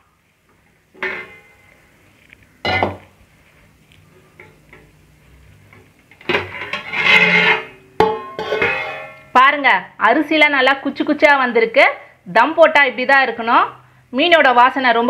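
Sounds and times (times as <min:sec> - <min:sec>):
steel lid clattering: 0:01.0 - 0:01.6, 0:06.2 - 0:09.2
metal pot knocks: 0:08.0 - 0:09.1.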